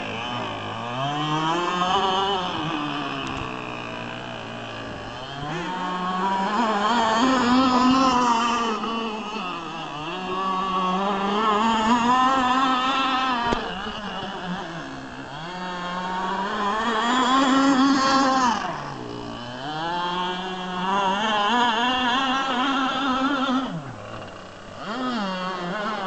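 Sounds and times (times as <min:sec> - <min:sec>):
toy boat motor whining: 0:00.0 - 0:26.0.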